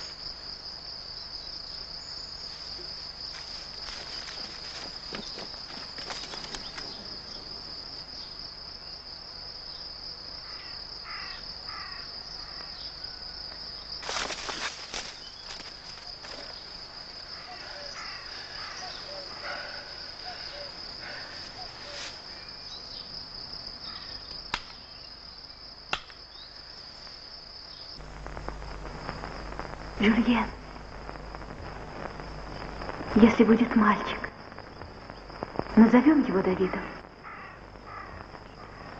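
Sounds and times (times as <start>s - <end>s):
insects chirring: 0.0s - 38.9s
rustling: 2.4s - 7.6s, 14.0s - 17.2s.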